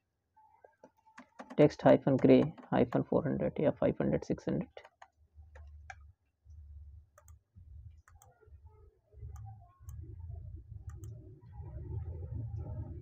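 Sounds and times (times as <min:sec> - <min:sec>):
keyboard and mouse clicks: 0:00.8 - 0:03.0, 0:04.7 - 0:06.1, 0:07.2 - 0:07.4, 0:08.0 - 0:08.4, 0:10.8 - 0:11.2
faint low hum: 0:01.6 - 0:13.0.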